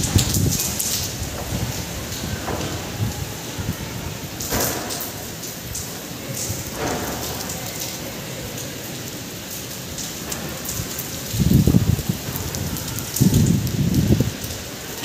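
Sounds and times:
wind gusts buffeting microphone: 0:00.0 - 0:05.4, 0:10.2 - 0:15.0
heavy rain falling: 0:00.0 - 0:15.0.

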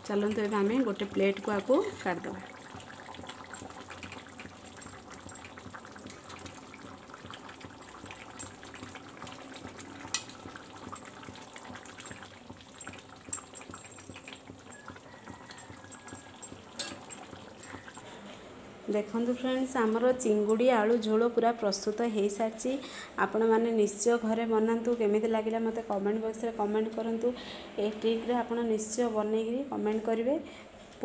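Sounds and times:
metal spoon clinking on plate: 0:13.3 - 0:14.4, 0:15.9 - 0:17.8.

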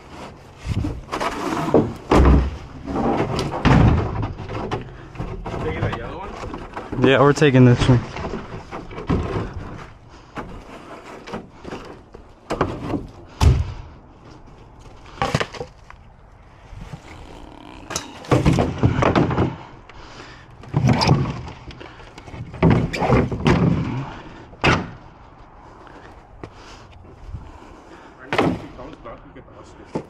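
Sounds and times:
bumping and rustling: 0:00.3 - 0:16.0, 0:16.7 - 0:25.2
knocks of junk and wood handled: 0:00.8 - 0:13.9, 0:17.9 - 0:19.9, 0:20.6 - 0:25.0, 0:28.3 - 0:28.8.

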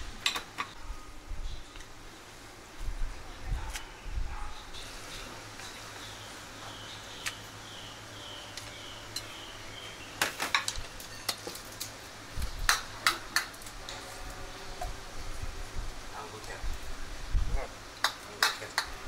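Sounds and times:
utensils clinking against wok and plates: 0:10.2 - 0:12.0.

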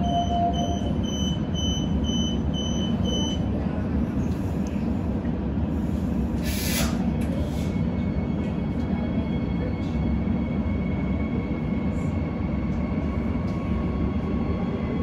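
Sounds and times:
door-closing warning beeps: 0:00.0 - 0:03.5
train low rumble: 0:00.0 - 0:15.0
hiss of released air: 0:06.4 - 0:07.7.

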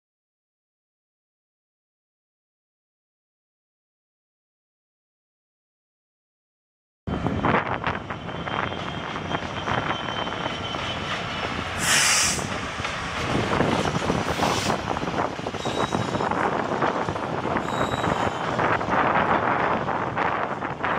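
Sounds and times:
diesel locomotive engine: 0:07.1 - 0:20.9
wheels on rail: 0:07.1 - 0:20.9
loud hiss: 0:11.8 - 0:12.5.

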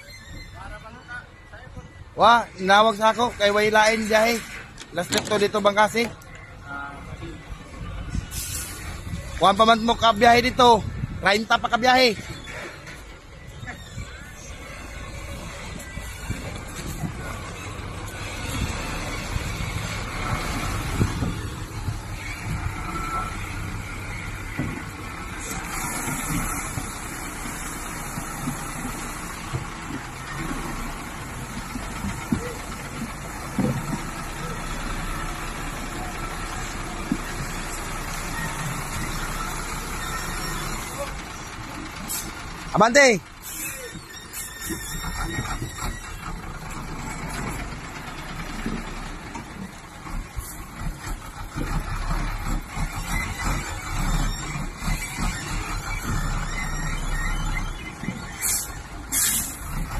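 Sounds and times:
truck diesel engine rumbling: 0:00.0 - 0:59.9
short hiss: 0:08.3 - 0:08.8, 0:58.4 - 0:59.6.

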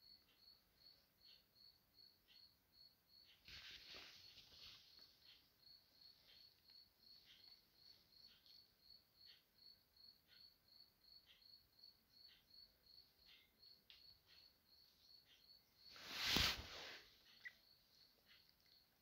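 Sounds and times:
soft ticks: 0:00.0 - 0:03.5, 0:04.4 - 0:15.9, 0:17.2 - 0:19.0
crickets chirping: 0:00.0 - 0:19.0.

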